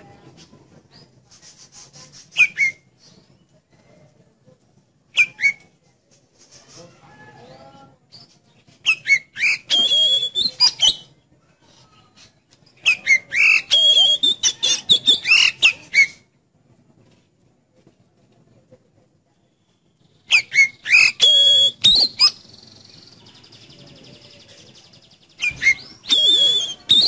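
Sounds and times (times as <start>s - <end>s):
bird singing whistled phrases: 2.4s - 2.9s, 5.2s - 5.7s, 7.4s - 11.1s, 12.8s - 16.2s, 20.3s - 27.0s
soft bird twittering: 19.6s - 27.0s.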